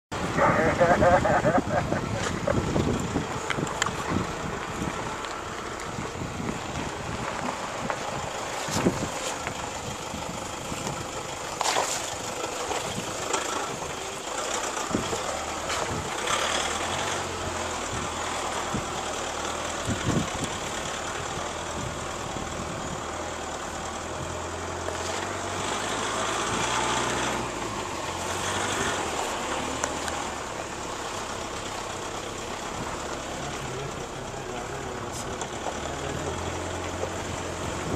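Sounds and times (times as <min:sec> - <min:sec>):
vehicle engine humming: 0:00.1 - 0:37.9
tyres crunching on stones: 0:02.2 - 0:17.0.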